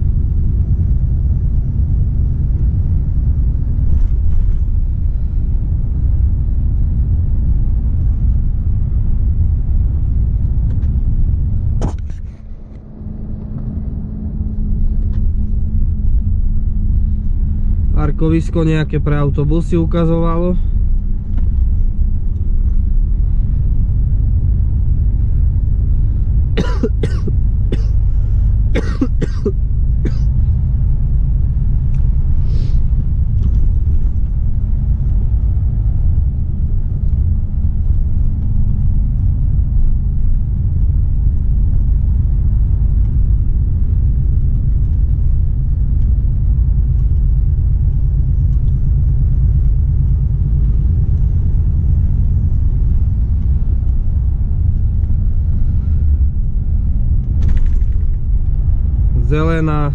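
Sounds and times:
road noise inside cab: 0:00.0 - 0:59.9
truck engine rumble: 0:00.0 - 0:59.9
man coughing: 0:26.6 - 0:28.0, 0:28.7 - 0:30.3.

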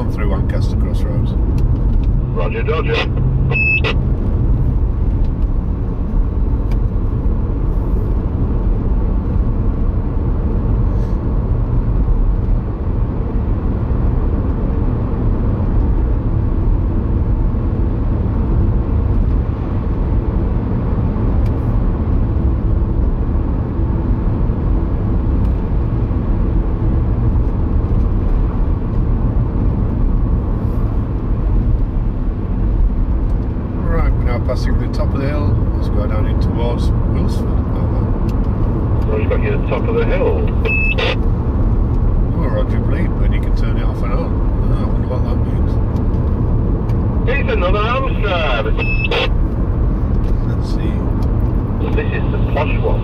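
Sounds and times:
road and engine rumble: 0:00.0 - 0:53.0
short high beep: 0:03.0 - 0:04.0, 0:40.3 - 0:41.2, 0:48.4 - 0:49.3.

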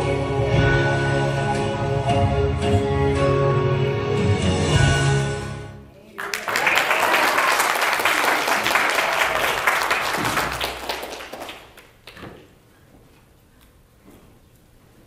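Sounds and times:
congregation applauding: 0:06.1 - 0:12.2.

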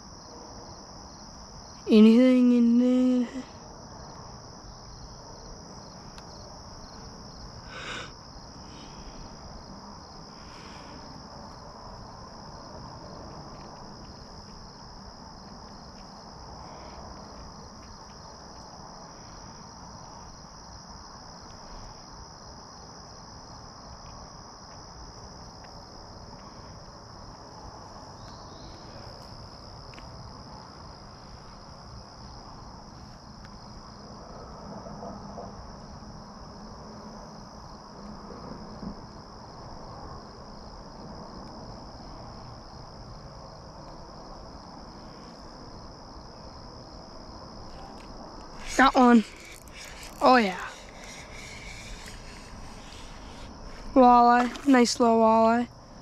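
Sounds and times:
crickets trilling: 0:00.0 - 0:56.0
rustle: 0:41.7 - 0:56.0.

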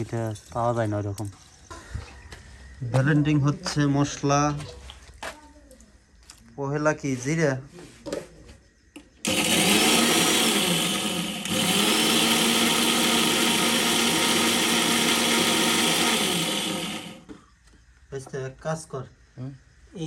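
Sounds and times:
electric spice grinder running: 0:09.2 - 0:17.3.

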